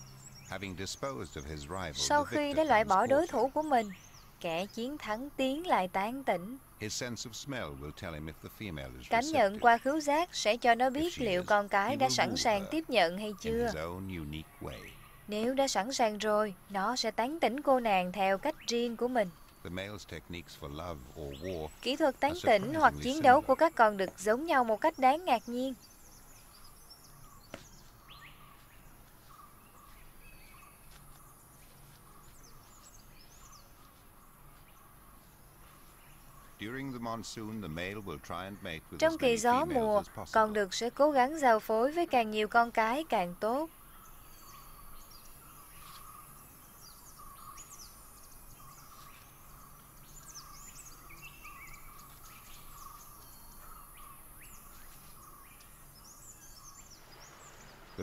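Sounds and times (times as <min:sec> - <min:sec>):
pulsing insect call: 0:00.0 - 0:04.0
background hiss: 0:00.0 - 0:58.0
small birds chirping: 0:00.0 - 0:58.0.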